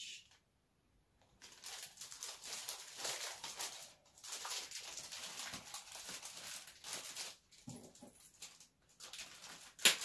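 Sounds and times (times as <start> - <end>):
plastic bag crinkling: 1.2 - 10.0.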